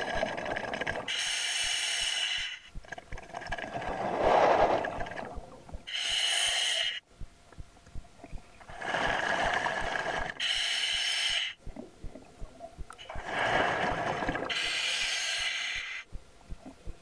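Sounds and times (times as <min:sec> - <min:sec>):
hissing regulator inhale: 0:01.1 - 0:02.7, 0:05.9 - 0:07.0, 0:08.7 - 0:11.6, 0:13.1 - 0:16.1.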